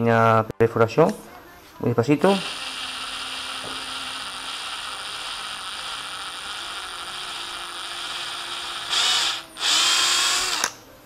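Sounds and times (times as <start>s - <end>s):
cordless drill whirring: 2.3s - 10.8s.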